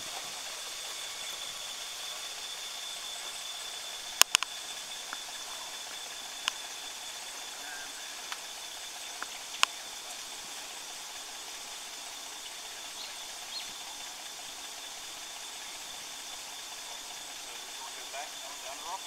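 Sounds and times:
even outdoor hiss: 0.0s - 19.0s
high thin whine: 0.0s - 19.0s
sharp clicks: 4.1s - 5.3s, 9.2s - 9.8s.

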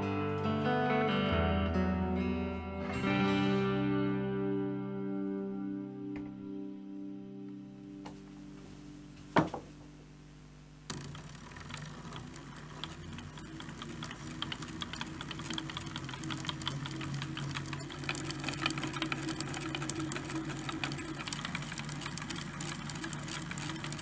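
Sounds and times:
stepper motor buzzing and rattling: 10.9s - 24.0s.

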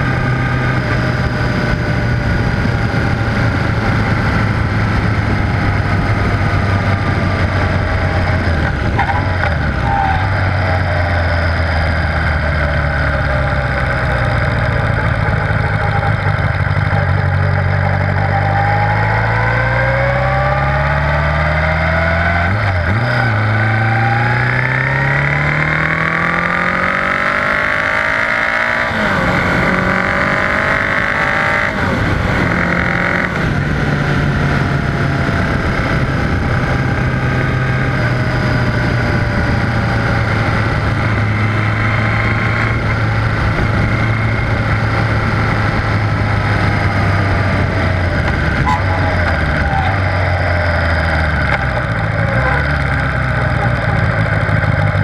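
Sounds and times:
motorcycle engine accelerating: 0.0s - 55.0s
wind and road rush: 0.0s - 55.0s.

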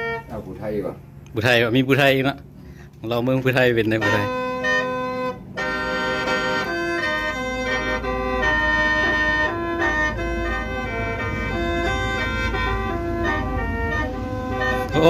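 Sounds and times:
mouth organ melody over drone: 0.0s - 0.7s, 3.3s - 15.0s.

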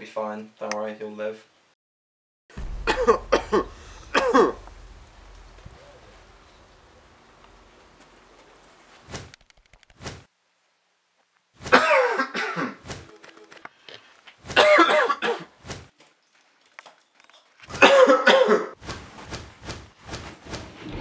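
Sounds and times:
man coughing hoarsely: 2.8s - 4.6s, 11.7s - 12.8s, 14.6s - 15.5s, 17.8s - 18.8s.

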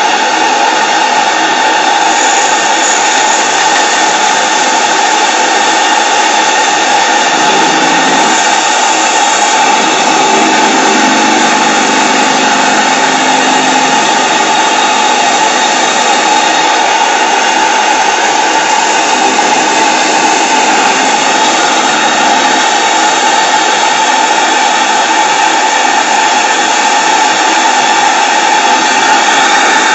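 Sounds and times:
steam engine hissing: 0.2s - 29.9s.

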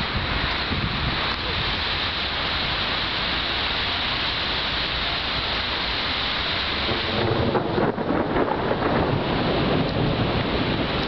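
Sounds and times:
wind rushing: 6.6s - 11.0s.

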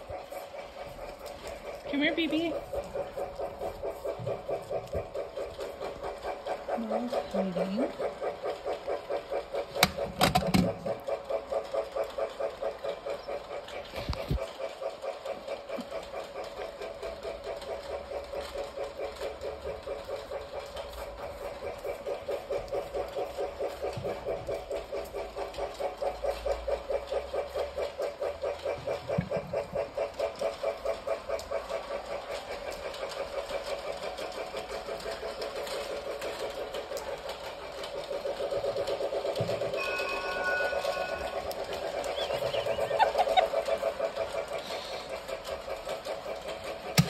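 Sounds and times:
toy train chugging: 0.0s - 47.0s.

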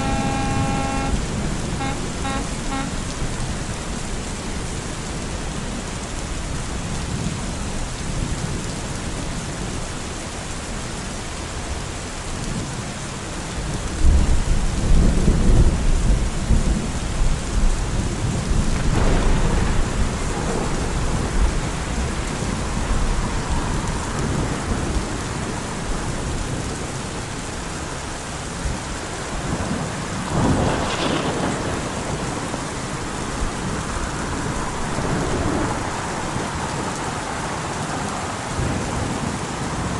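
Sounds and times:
thunder rumbling: 0.0s - 4.2s, 14.0s - 26.8s, 29.4s - 37.8s
steady rain falling: 0.0s - 39.9s.

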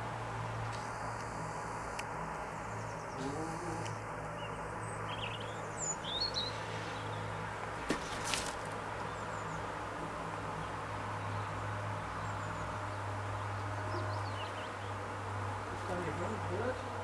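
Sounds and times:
steady low hum: 0.0s - 6.1s
small birds chirping: 2.3s - 9.7s, 10.6s - 15.1s.

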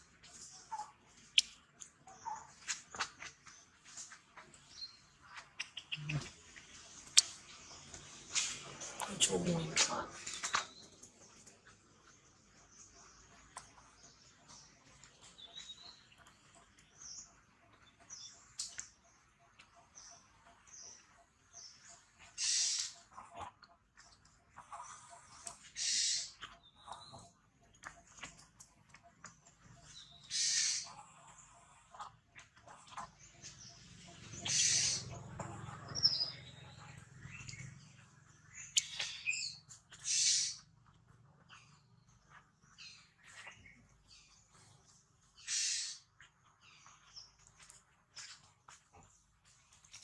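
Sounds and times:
small birds chirping: 0.0s - 50.0s
animal squeaks and chirps: 30.2s - 31.0s, 34.3s - 35.1s, 38.7s - 40.6s.

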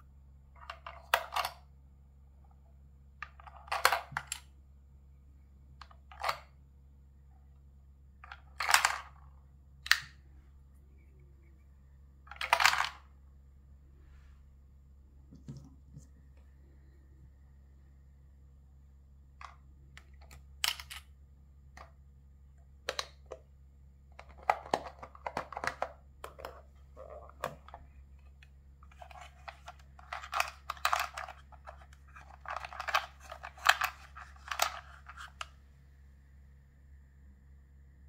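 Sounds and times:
plastic toy machine clicks and rattles: 8.3s - 9.2s, 12.3s - 13.0s, 28.9s - 35.5s.

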